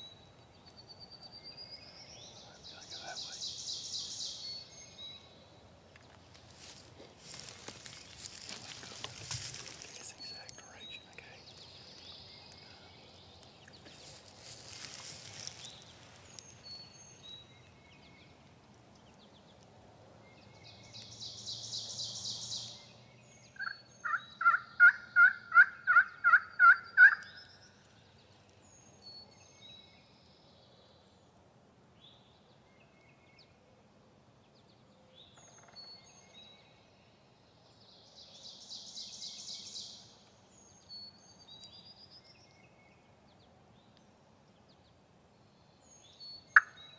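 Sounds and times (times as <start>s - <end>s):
small songbirds chirping: 0.0s - 46.9s.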